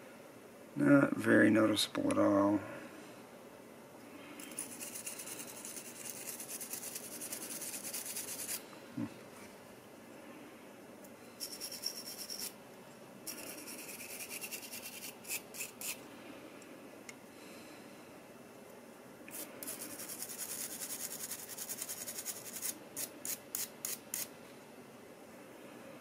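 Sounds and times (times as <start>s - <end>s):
wire brush scrubbing metal: 4.5s - 8.6s, 13.3s - 16.0s.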